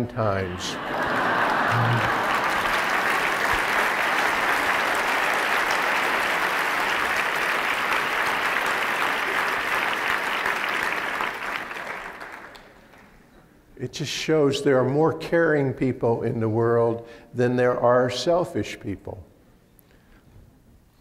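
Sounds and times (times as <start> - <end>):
audience applauding: 0.6 - 13.1.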